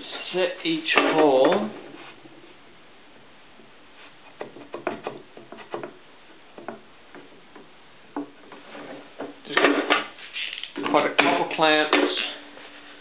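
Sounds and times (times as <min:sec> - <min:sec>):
wooden board clicks and knocks: 0:04.3 - 0:08.6.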